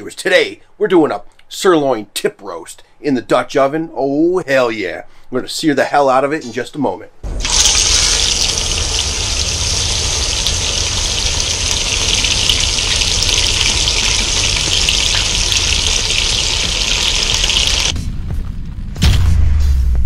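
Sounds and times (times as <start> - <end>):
low rumble: 7.2 - 20.0
meat sizzling in a pot: 7.3 - 17.9.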